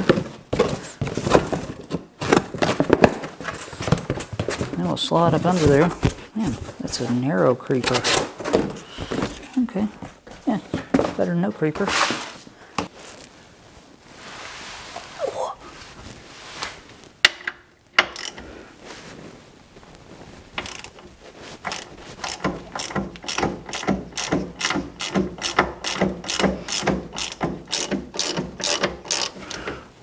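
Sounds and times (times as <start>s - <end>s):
ratchet wrench clicking: 18.0s - 18.4s, 20.6s - 21.0s, 21.7s - 29.5s.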